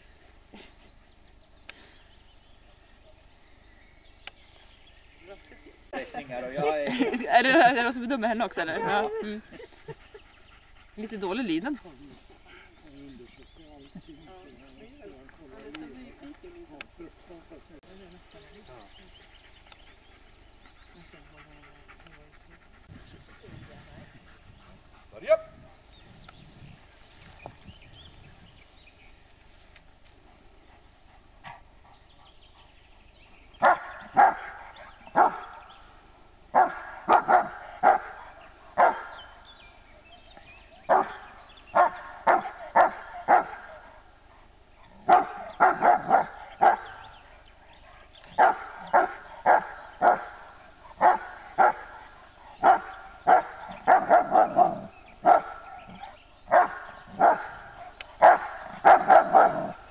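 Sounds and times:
dog barking: 33.6s - 35.7s, 36.6s - 39.4s, 40.9s - 43.8s, 44.8s - 47.1s, 47.9s - 50.4s, 51.0s - 52.0s, 52.6s - 59.8s.

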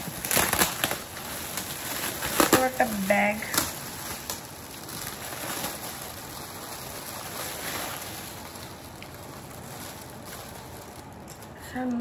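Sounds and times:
rustling gift packaging: 0.0s - 12.0s.

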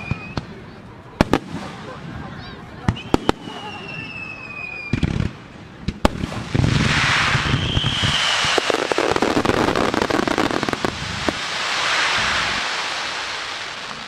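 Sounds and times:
fireworks crackling: 0.0s - 14.0s
firework bangs: 1.2s - 14.0s
high firework whistle: 2.9s - 5.1s, 6.8s - 13.8s.

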